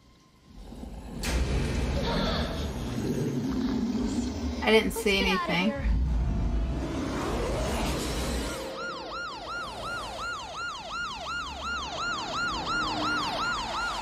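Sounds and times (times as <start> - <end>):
low rumble: 0.4 - 4.9, 5.7 - 8.7
police siren yelping: 8.4 - 14.0.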